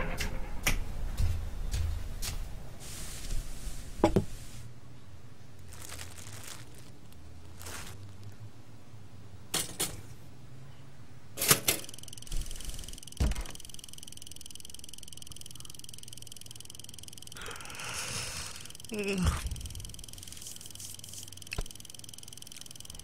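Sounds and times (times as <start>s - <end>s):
steady electric buzz: 11.8s - 23.0s.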